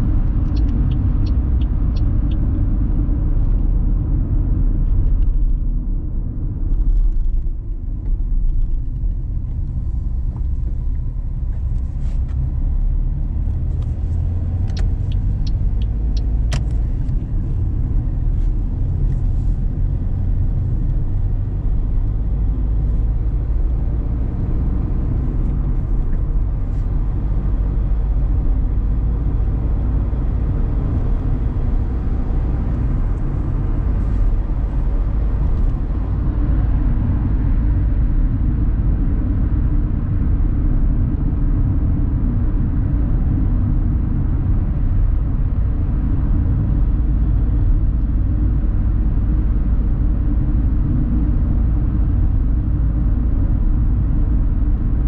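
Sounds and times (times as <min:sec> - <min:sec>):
car engine and road noise: 0:00.0 - 0:55.0.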